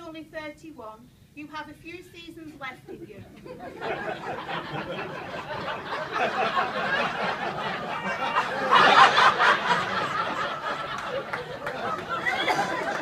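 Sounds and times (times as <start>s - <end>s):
audience laughing: 3.0s - 13.0s
audience chattering: 3.5s - 13.0s.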